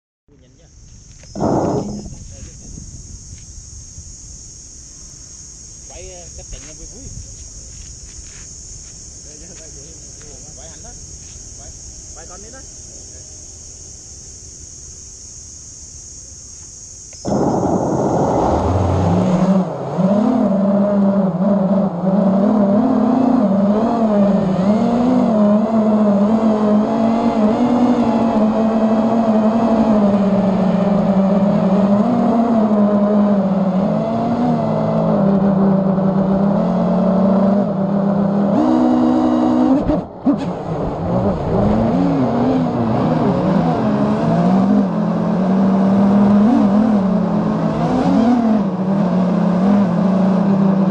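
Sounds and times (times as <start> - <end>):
quadcopter motors whining: 1.0 - 2.8, 17.0 - 21.4.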